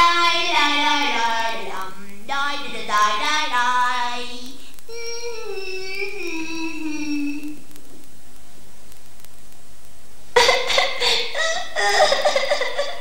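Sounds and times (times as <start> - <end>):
high voice crying wails: 4.9 - 7.6, 10.4 - 13.0.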